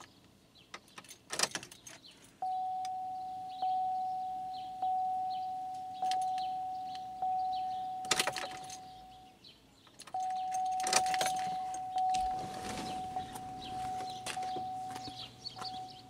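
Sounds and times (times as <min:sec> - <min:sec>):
dashboard warning chime dinging: 0:02.4 - 0:09.4, 0:10.1 - 0:16.0
keys jangling: 0:08.0 - 0:09.0, 0:10.0 - 0:12.4.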